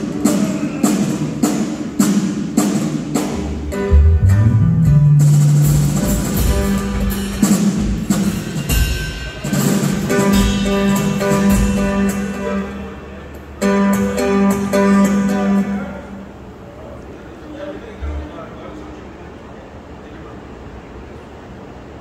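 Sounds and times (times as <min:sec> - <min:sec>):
drum kit beating: 0:00.0 - 0:15.7
bass guitar notes: 0:03.4 - 0:08.2, 0:10.1 - 0:16.5
held instrument notes: 0:03.6 - 0:07.8.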